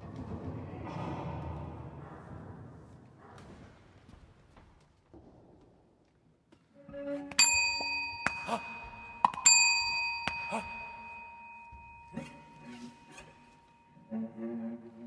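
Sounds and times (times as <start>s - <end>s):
struck metal ringing: 7.3s - 14.0s.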